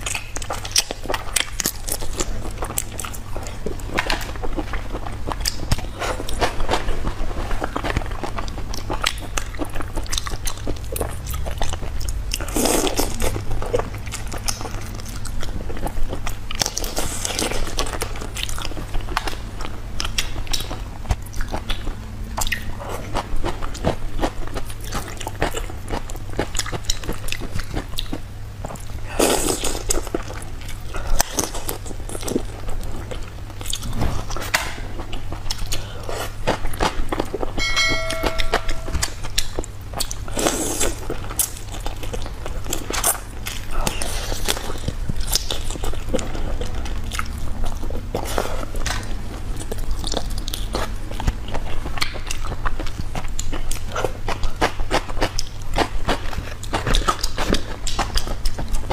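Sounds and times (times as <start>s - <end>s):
chewing and lip smacks: 0.0s - 37.6s, 39.0s - 58.9s
low steady hum: 0.0s - 58.9s.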